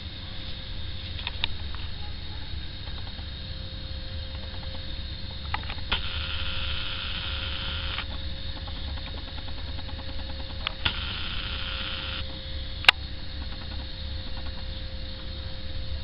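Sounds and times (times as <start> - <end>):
constant hum: 0.0 - 16.0
zoom motor whirring: 5.6 - 12.3
sharp click: 7.1 - 12.2, 12.8 - 14.7.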